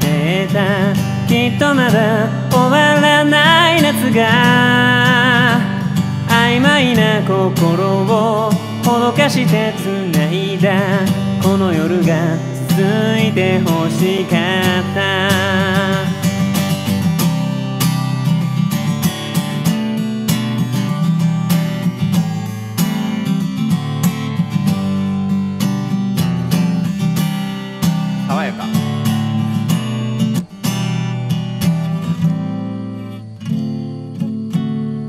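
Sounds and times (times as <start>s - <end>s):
acoustic guitar strumming: 0.0s - 35.0s.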